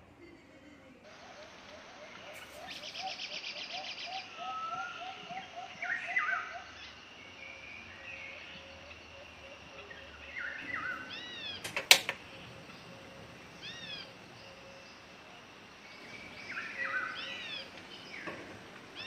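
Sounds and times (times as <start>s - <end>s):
animal chirping calls: 1.1s - 6.9s, 12.3s - 14.8s
gas stove knob click: 11.6s - 12.2s.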